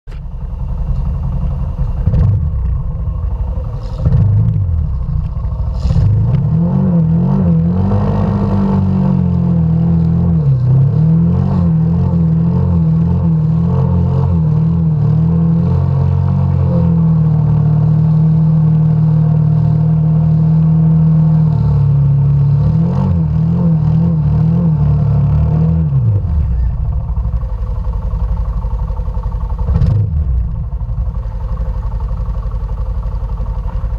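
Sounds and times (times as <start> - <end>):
low rumble with knocks: 0.1 - 8.2, 23.4 - 33.9
atv engine revving: 0.1 - 33.9.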